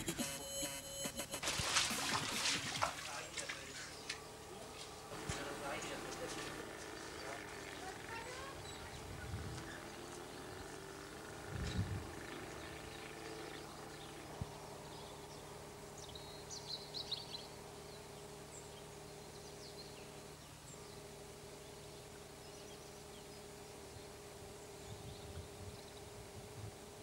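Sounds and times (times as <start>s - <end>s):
low hum: 0.0s - 27.0s
bird chirps: 6.8s - 26.1s.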